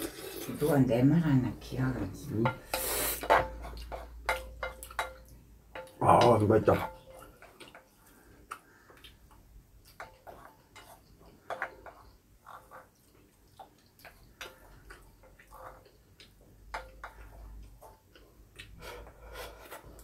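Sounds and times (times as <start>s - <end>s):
chewing: 7.1s - 20.0s.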